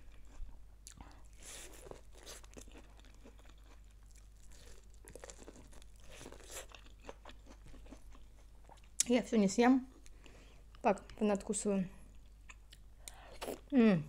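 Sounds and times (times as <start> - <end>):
crunchy chewing: 0.1 - 9.0.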